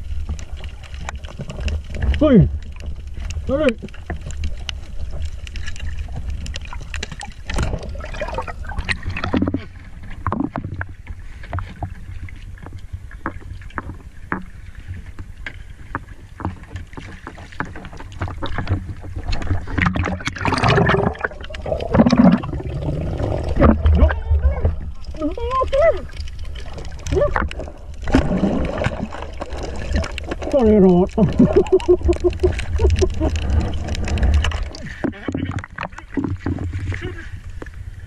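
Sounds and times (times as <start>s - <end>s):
water sloshing and splashing: 0.0s - 38.0s.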